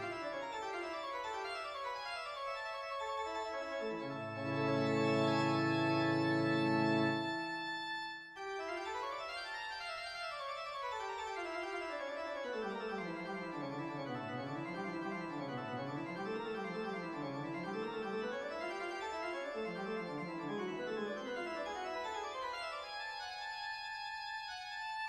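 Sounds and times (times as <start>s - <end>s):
keyboard music: 3.5s - 8.3s, 12.6s - 23.2s.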